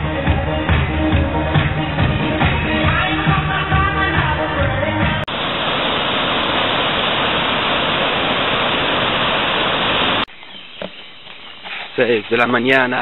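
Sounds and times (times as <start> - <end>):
waterfall rushing: 5.2 - 10.3.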